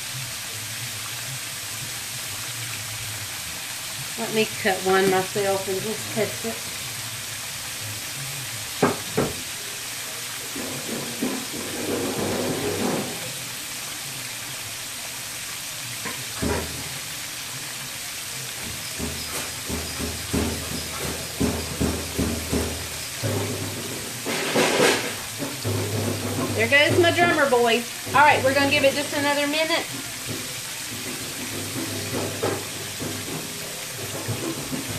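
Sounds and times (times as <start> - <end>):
food deep-frying in hot oil: 0.0 - 34.9
drum beats: 7.9 - 9.6, 10.4 - 13.4, 16.0 - 17.2, 18.4 - 34.9
sharp knocks: 19.0 - 27.3.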